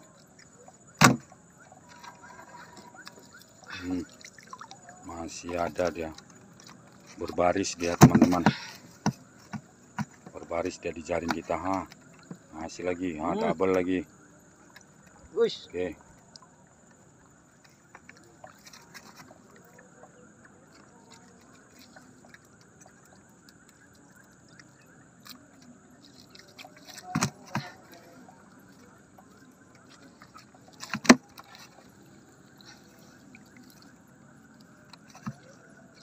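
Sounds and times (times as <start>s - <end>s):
sharp knocks against boat: 1.0s - 1.4s, 27.1s - 27.8s.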